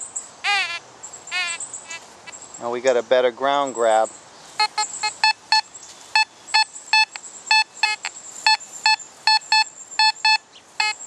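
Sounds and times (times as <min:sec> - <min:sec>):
metal detector beeps: 0:04.6 - 0:11.0.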